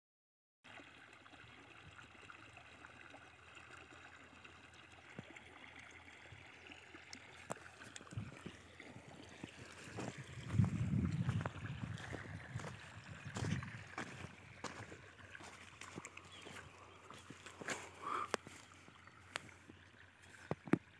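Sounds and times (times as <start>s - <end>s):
water trickling: 0.7s - 20.9s
wind rumble on microphone: 8.1s - 8.6s, 9.8s - 14.9s.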